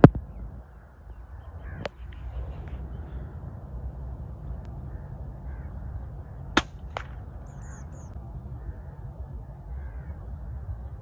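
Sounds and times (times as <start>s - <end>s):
air rifle shot crack: 6.6s - 7.7s
high bird chirps: 7.3s - 8.2s.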